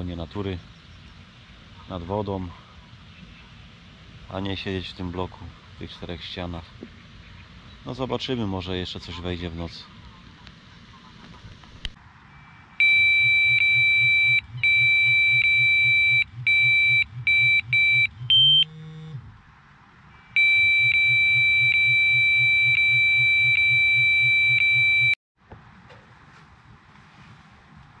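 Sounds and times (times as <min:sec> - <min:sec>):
bite alarm rapid high beeps: 0:12.3 - 0:18.7, 0:20.1 - 0:25.2.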